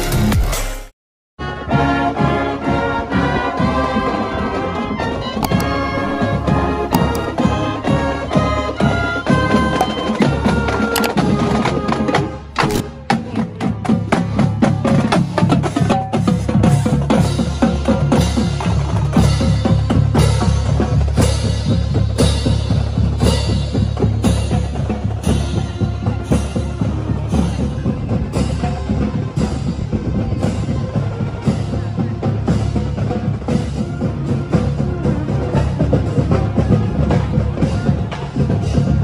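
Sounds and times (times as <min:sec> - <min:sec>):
bass drums beating: 0:05.4 - 0:39.0.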